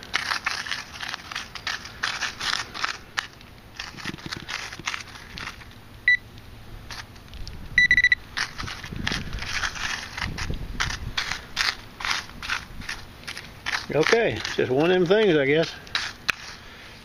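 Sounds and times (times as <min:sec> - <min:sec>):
probe scraping through dirt: 0:00.0 - 0:05.8, 0:08.0 - 0:17.0
metal detector beeps: 0:06.0 - 0:06.2, 0:07.8 - 0:08.2.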